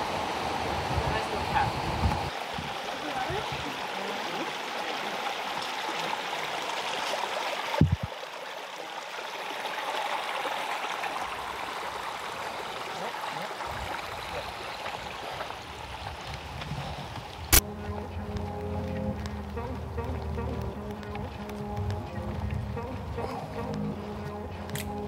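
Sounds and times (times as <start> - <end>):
rushing river water: 0.0 - 25.0
low thump: 7.8 - 8.1.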